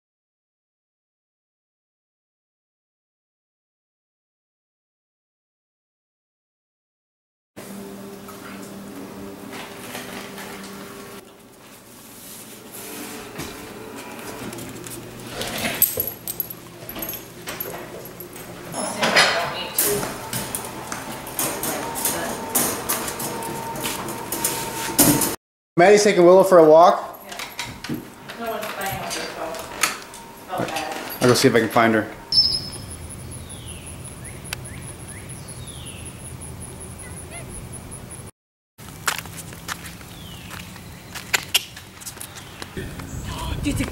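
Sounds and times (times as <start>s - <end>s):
high-pitched pulsing: 27.5s - 38.3s
descending bird calls: 30.1s - 38.3s.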